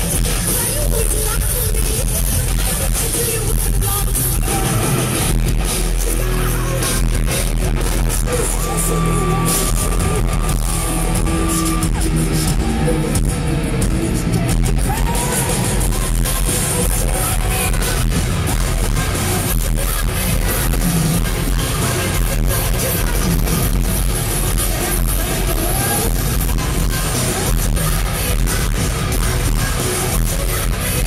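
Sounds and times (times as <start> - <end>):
metal band playing loudly: 0.0 - 31.0
drums hitting: 6.8 - 31.0.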